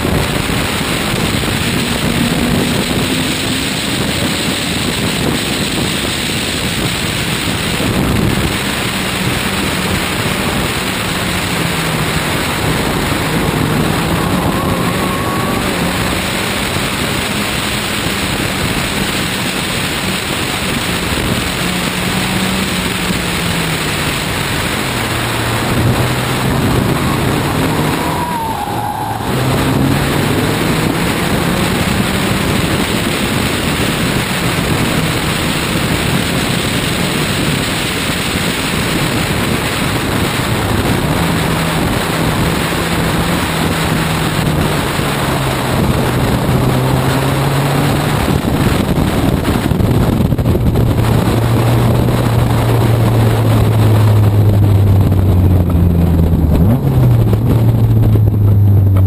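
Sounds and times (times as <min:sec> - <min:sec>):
heavy wind noise: 0:00.0 - 0:59.0
race car engine running hard: 0:00.0 - 0:59.0
road noise: 0:00.0 - 0:59.0.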